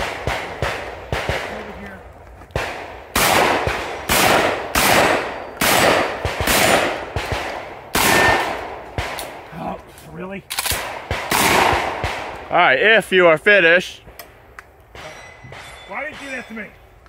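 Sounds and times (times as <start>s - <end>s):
gunshots with echo: 0.0s - 2.0s, 2.6s - 9.5s, 10.7s - 12.6s, 14.9s - 16.7s.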